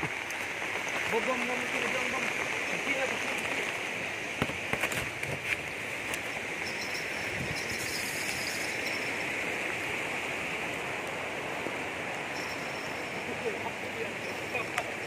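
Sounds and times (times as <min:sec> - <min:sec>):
river rushing past rocks: 0:00.0 - 0:15.0.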